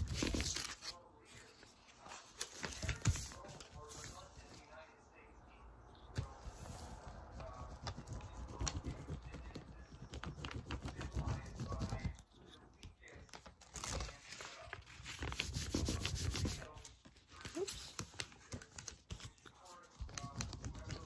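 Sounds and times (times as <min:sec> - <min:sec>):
paper rustling and crinkling: 0:00.0 - 0:04.8, 0:13.0 - 0:21.0.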